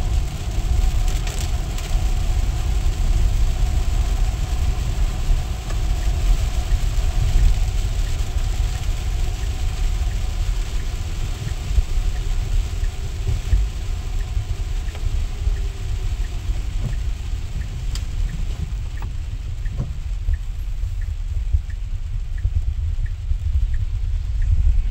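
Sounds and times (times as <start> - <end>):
tyres hissing on wet road: 0.0 - 23.2
car road rumble: 0.0 - 24.9.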